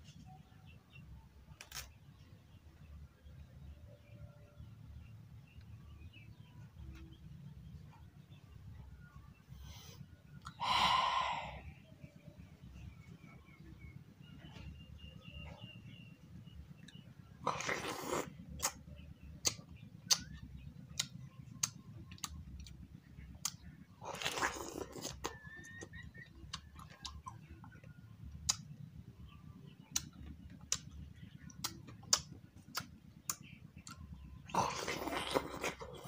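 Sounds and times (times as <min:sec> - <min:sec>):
low steady hum: 0:00.0 - 0:36.0
mouth sounds: 0:09.7 - 0:12.0
chewing watermelon: 0:15.3 - 0:36.0.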